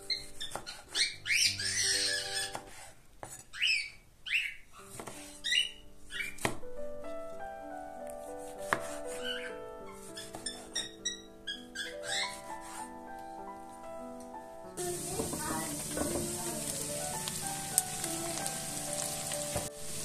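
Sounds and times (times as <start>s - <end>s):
soft piano-like background music: 0.0s - 20.0s
knife slicing tomatoes: 4.9s - 5.4s, 8.4s - 9.4s
knife knocking on cutting board: 15.0s - 16.4s.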